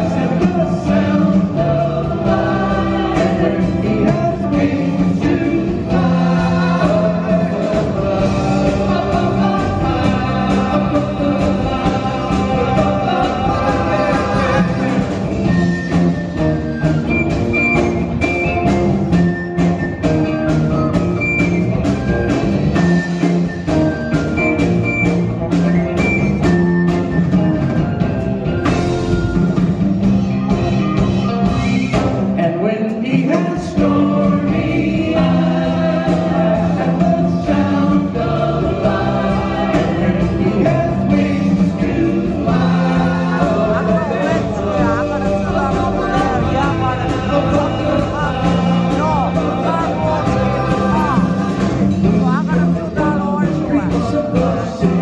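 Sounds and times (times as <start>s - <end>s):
group vocal harmonies: 0.0s - 19.2s, 31.7s - 55.0s
live pop band playing: 0.0s - 55.0s.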